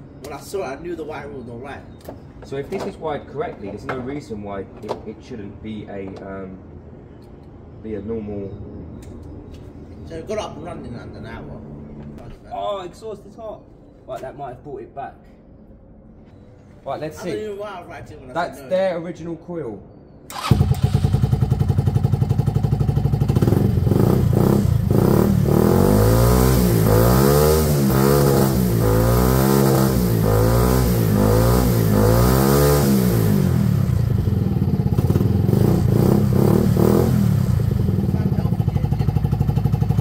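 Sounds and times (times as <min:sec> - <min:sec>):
scooter engine idling and revving: 0:20.3 - 0:40.0.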